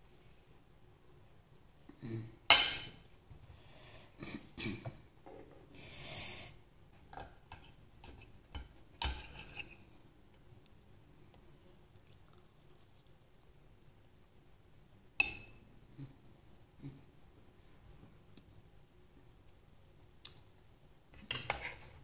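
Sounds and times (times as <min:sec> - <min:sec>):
cutlery clinking on ceramic plate: 0:02.5 - 0:03.0.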